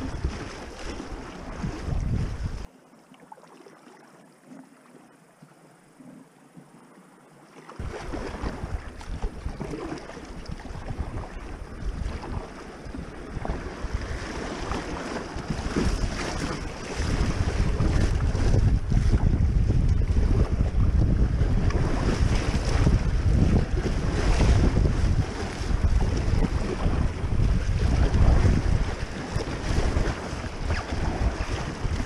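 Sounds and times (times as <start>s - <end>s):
wind rumbling on microphone: 0.0s - 2.7s, 7.8s - 32.0s
creek water rushing and splashing: 0.0s - 6.3s, 7.0s - 19.4s.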